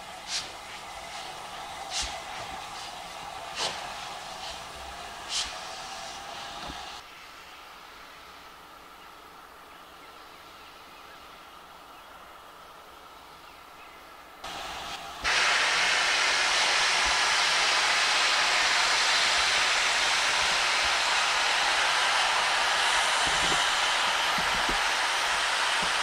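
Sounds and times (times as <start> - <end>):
loud hiss of escaping steam: 0.0 - 8.7, 14.4 - 26.0
steam locomotive hissing: 0.0 - 9.4, 14.4 - 26.0.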